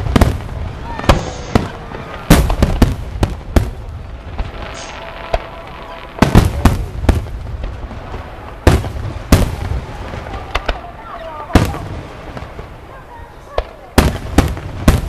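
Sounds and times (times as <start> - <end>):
firework shells bursting: 0.0 - 10.9.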